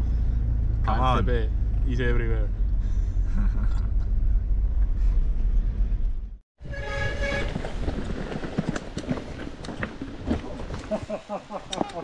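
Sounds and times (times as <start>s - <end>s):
wind rumble and bike rattling: 3.9s - 10.9s.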